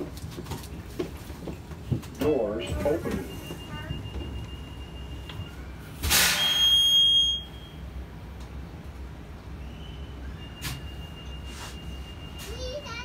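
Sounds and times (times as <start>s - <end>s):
bus door electronic beep: 2.2s - 7.9s, 9.7s - 12.8s.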